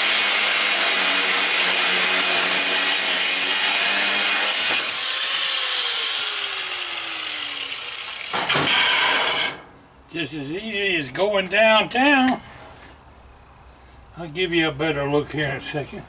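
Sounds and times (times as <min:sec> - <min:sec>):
angle grinder cutting metal: 0:00.0 - 0:09.6.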